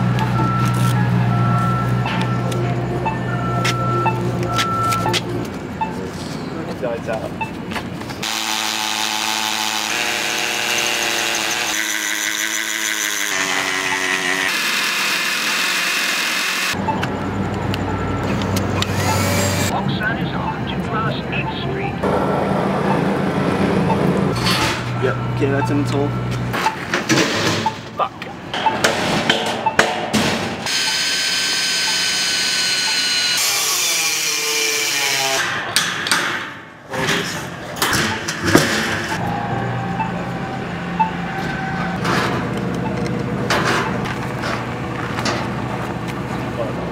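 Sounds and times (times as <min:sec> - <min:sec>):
angle grinder cutting metal: 0:08.2 - 0:16.8, 0:30.7 - 0:35.5
power tool motor whine: 0:08.2 - 0:16.8, 0:30.7 - 0:34.5.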